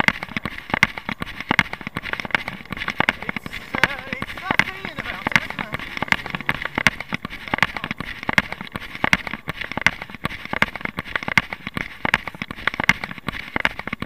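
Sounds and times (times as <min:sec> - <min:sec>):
footfalls on paving slabs: 0:00.0 - 0:14.0
camera rustling and knocking: 0:09.1 - 0:14.0.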